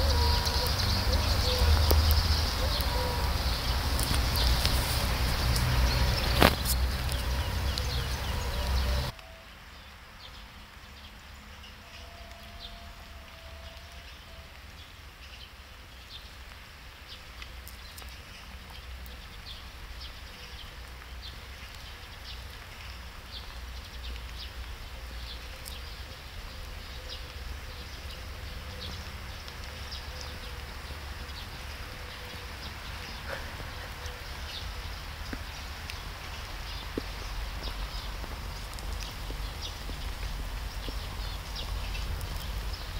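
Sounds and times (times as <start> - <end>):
snail rasping clicks: 3.8 - 8.0.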